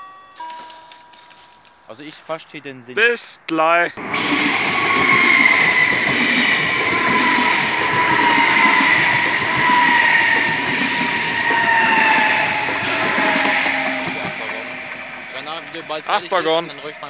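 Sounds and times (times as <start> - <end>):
train wheels rumbling on rails: 4.0 - 17.0
train whine falling in pitch: 4.0 - 17.0.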